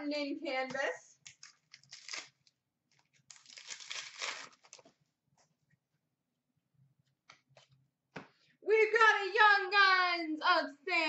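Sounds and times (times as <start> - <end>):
foil wrapper tearing: 1.4 - 2.5, 3.3 - 4.8.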